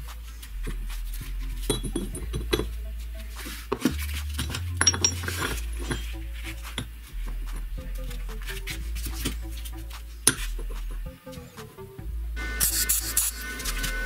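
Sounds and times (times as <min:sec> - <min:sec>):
steel plates clinking: 0:01.6 - 0:10.7.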